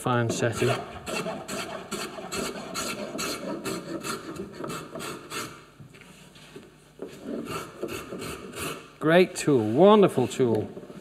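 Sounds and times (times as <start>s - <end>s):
spokeshave scraping wood: 0.2s - 8.9s.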